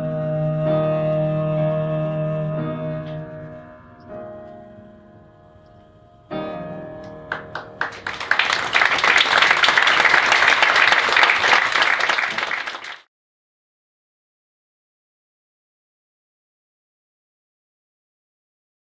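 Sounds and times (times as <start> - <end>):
piano chord ringing: 2.4 - 8.2
audience applause: 7.3 - 13.0.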